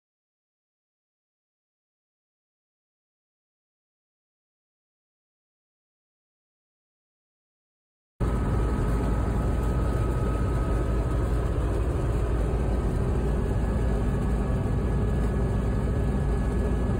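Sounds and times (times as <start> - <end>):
combine engine rumble: 8.2 - 16.9
faint steady whine: 8.2 - 16.9.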